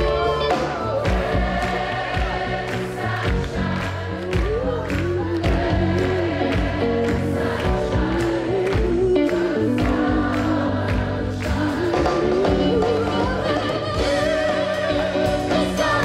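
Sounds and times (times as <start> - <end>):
bass: 0.0 - 16.0
drum beats: 0.0 - 16.0
male vocal group singing harmony: 0.0 - 16.0.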